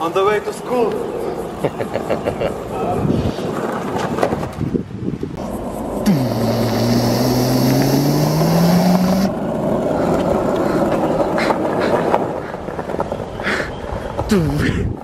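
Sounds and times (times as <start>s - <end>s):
skateboard wheels rolling on asphalt: 0.0s - 15.0s
engine-like hum rising in pitch: 5.4s - 9.6s.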